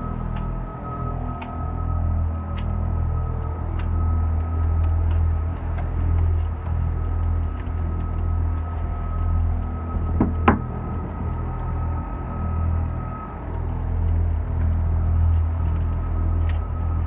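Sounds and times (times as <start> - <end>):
boat engine droning: 0.0 - 17.0
sharp knocks: 10.0 - 10.8.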